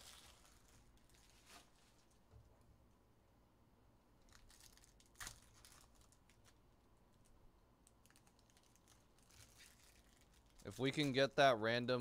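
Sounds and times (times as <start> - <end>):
foil wrapper crinkling: 0.0 - 2.2, 4.2 - 11.4.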